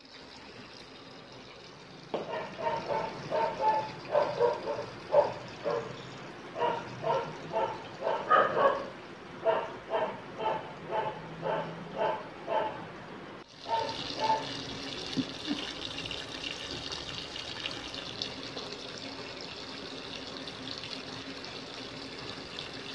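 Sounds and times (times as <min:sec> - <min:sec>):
water pouring into washing machine: 0:00.0 - 0:09.0, 0:13.4 - 0:22.9
dog barking: 0:02.2 - 0:05.9, 0:06.6 - 0:12.8, 0:13.7 - 0:14.6.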